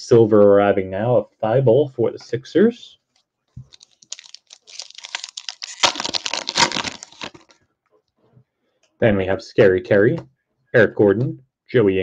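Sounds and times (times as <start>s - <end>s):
plastic wrapper crinkling and tearing: 3.6s - 7.6s.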